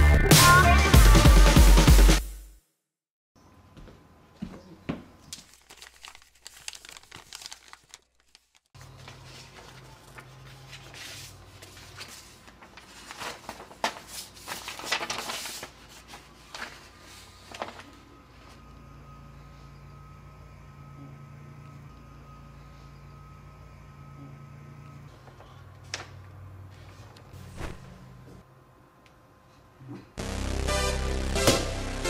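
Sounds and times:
paper mail rustling: 5.3s - 18.6s.

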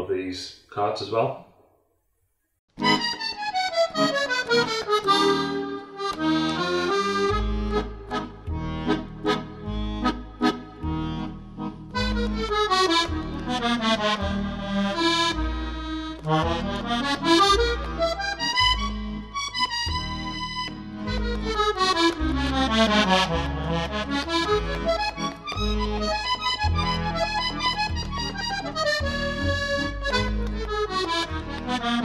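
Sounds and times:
bass notes pulse: 7.3s - 32.0s.

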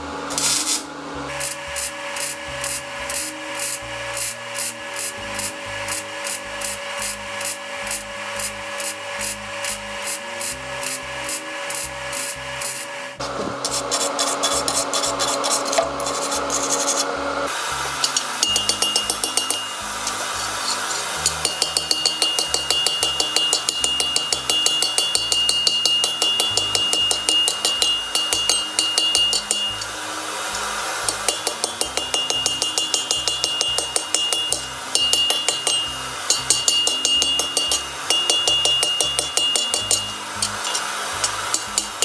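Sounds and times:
anvil ringing: 18.0s - 30.0s, 31.1s - 42.0s
hammer striking iron on anvil: 18.0s - 30.0s, 31.0s - 42.0s.

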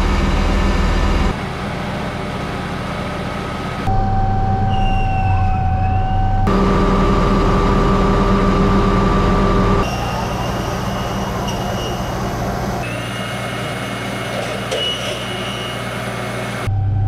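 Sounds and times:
low machine hum: 0.0s - 17.0s
whining tones: 3.8s - 17.0s.

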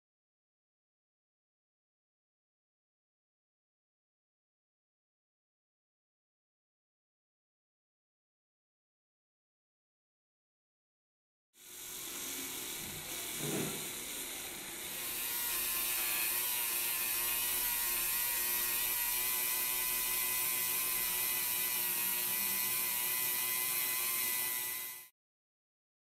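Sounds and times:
rotary tool grinding metal: 11.6s - 25.1s.

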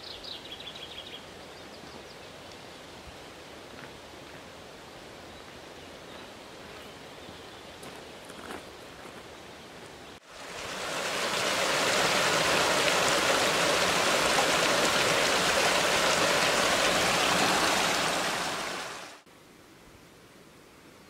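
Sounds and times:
waterfall rushing over rocks: 10.2s - 19.2s.

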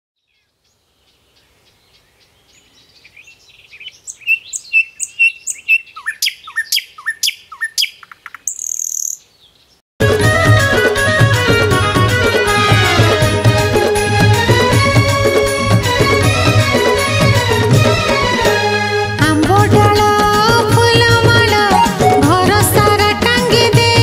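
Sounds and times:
birds chirping: 0.2s - 9.8s
music with steady beat: 10.0s - 24.0s.

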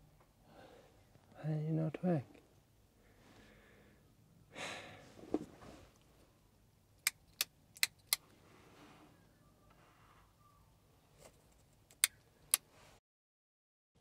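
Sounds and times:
breath: 0.4s - 1.0s, 3.0s - 5.2s
sharp clicks: 7.0s - 8.2s, 11.9s - 12.7s.

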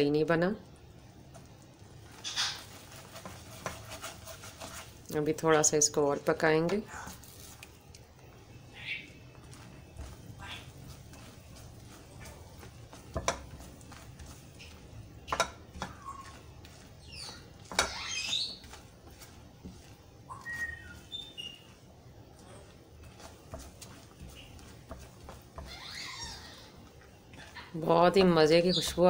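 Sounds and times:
spatula stirring thick syrup: 1.2s - 29.0s
bird-like chirps and whistles: 8.7s - 9.1s, 17.0s - 18.6s, 20.3s - 21.7s.

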